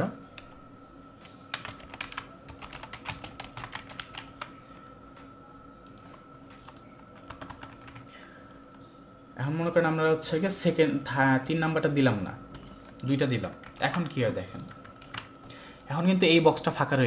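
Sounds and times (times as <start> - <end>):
keyboard typing: 1.2 - 8.1, 12.5 - 15.9.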